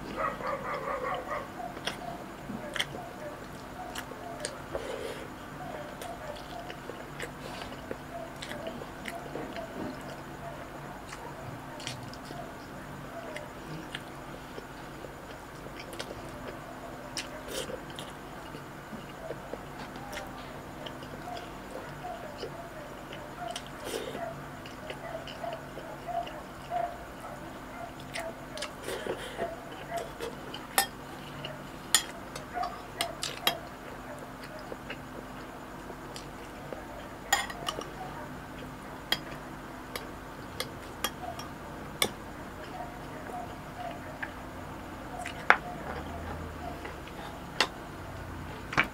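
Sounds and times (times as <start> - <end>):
close-up chewing: 0.0 - 47.8
metal spoon clinking on glass bowl: 37.3 - 37.8.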